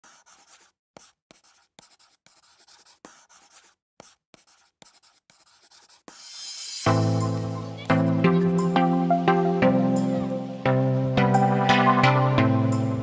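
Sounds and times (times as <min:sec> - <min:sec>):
pen scratching on paper: 0:00.0 - 0:08.0.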